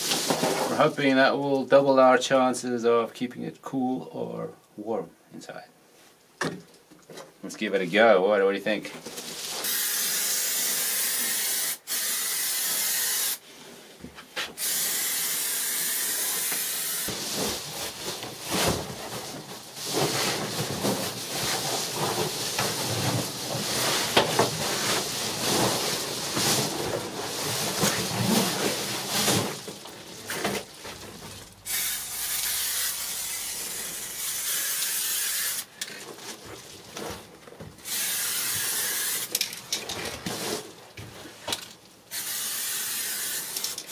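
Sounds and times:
foil insulation crinkling: 8.8s - 9.9s, 16.7s - 34.2s, 35.6s - 37.9s, 38.6s - 42.0s.

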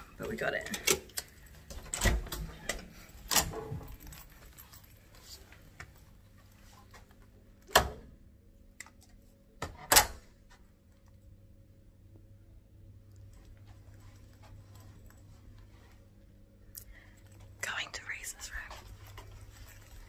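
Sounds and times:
key clicking in door: 0.7s - 4.4s.

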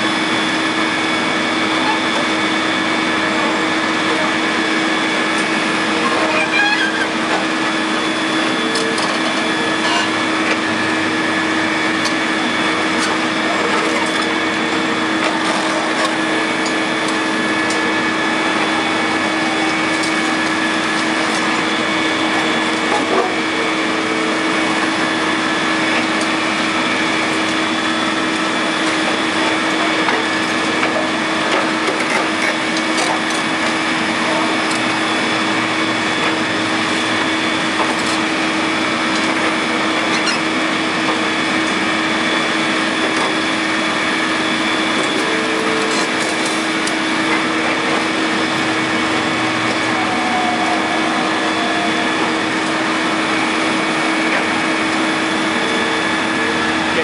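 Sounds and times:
excavator engine droning: 0.0s - 57.0s
concrete cracking and crunching: 42.8s - 48.5s.

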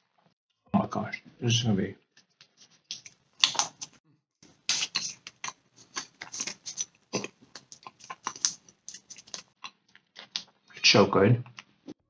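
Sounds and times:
lip smacks and mouth clicks: 2.9s - 4.0s, 4.6s - 10.6s
person chewing: 3.4s - 10.6s.

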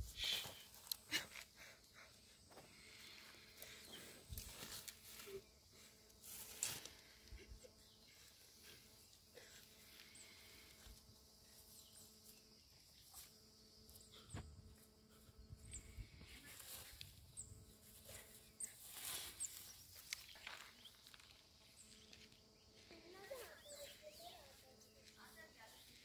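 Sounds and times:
rustling of leafy weeds: 2.7s - 13.3s, 16.0s - 26.0s.

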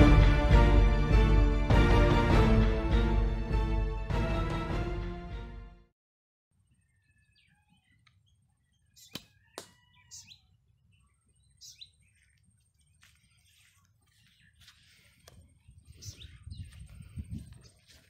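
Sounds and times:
bird chirps: 6.6s - 18.0s.

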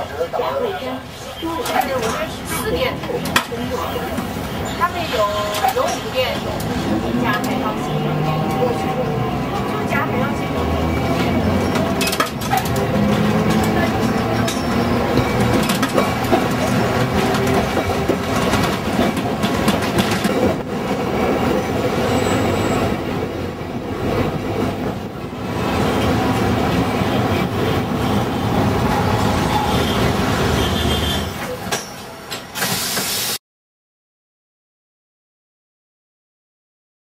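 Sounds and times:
electric tram rumbling: 0.0s - 33.4s
wheel and rail clicks: 11.1s - 20.6s
hiss burst: 32.6s - 33.4s.

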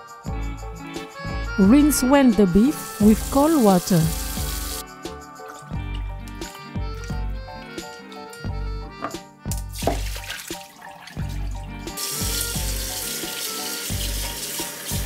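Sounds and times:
tap running onto strainer: 8.4s - 11.4s
water splashing: 9.7s - 15.0s.

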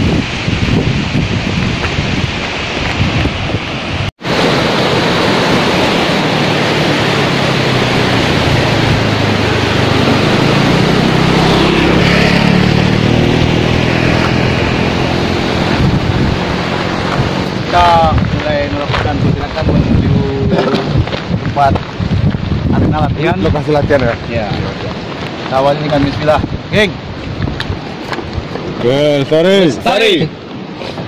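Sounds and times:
wind buffeting microphone: 0.0s - 31.0s
motor scooter droning past: 5.2s - 17.6s.

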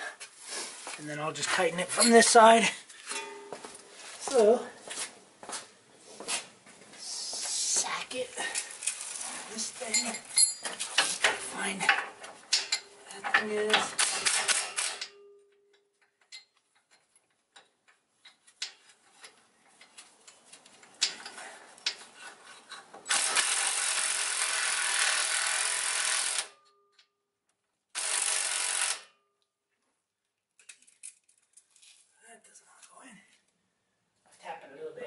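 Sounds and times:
impact wrench running: 23.1s - 26.6s, 28.0s - 29.1s.

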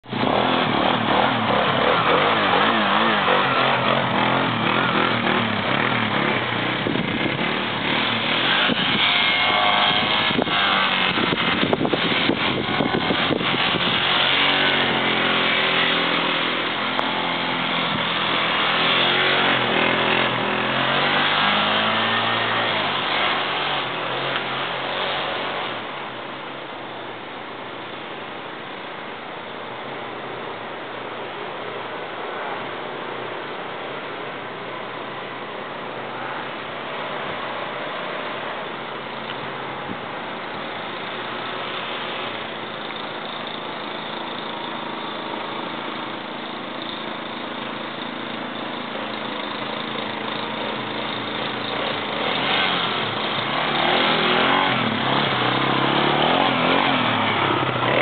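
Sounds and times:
quad bike engine revving: 0.0s - 26.6s, 34.4s - 58.0s.

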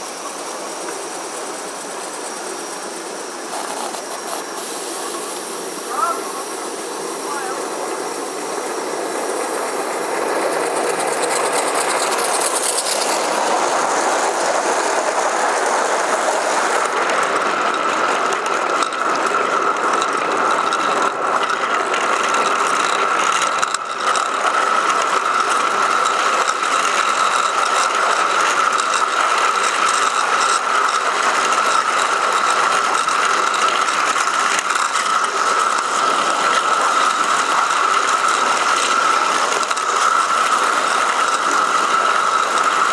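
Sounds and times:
steam hiss: 0.0s - 18.7s, 22.3s - 42.9s
model train wheels clattering: 0.0s - 42.9s
steady high whine: 0.0s - 42.9s.

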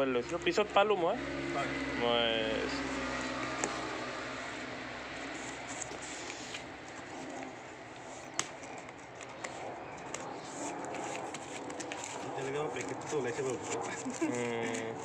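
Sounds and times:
cardboard and tape rustling: 4.6s - 15.0s.

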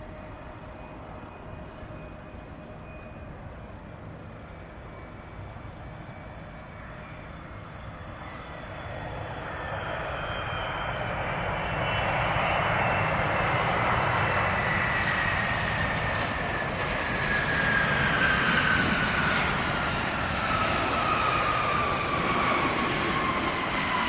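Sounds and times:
jet engines running: 0.0s - 24.0s
engine whine falling in pitch: 13.8s - 24.0s.

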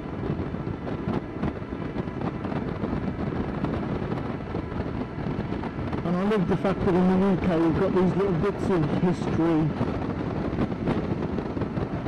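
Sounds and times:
wind rushing over microphone: 0.0s - 12.0s.

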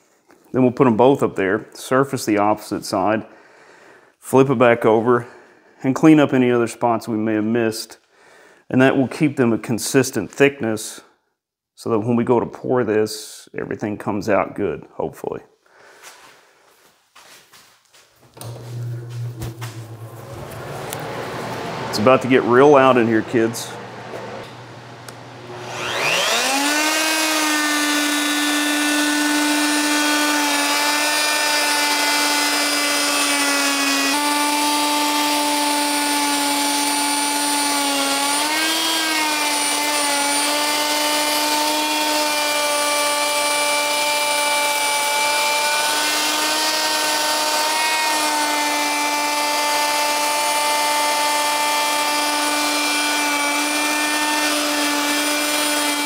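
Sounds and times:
electric router whining: 18.3s - 56.0s.

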